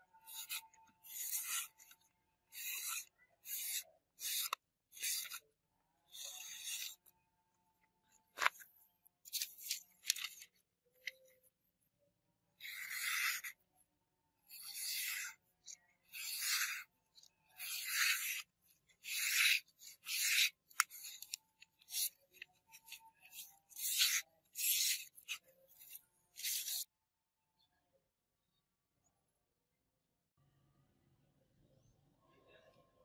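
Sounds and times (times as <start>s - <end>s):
knife slicing paper: 0.2s - 5.4s, 6.1s - 7.1s, 9.3s - 10.5s, 12.6s - 13.6s, 14.5s - 15.4s, 16.0s - 26.9s.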